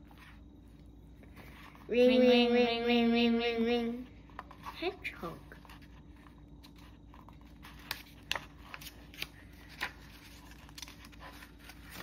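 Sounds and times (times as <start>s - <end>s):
book pages turning: 4.2s - 12.0s.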